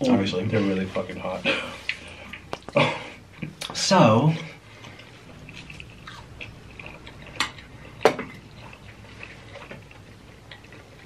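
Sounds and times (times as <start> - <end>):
people chewing: 0.2 - 11.0.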